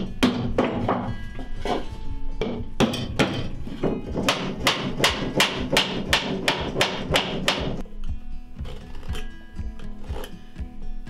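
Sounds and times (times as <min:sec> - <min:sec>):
mallet knocking on wood: 0:00.0 - 0:01.2, 0:02.4 - 0:07.8.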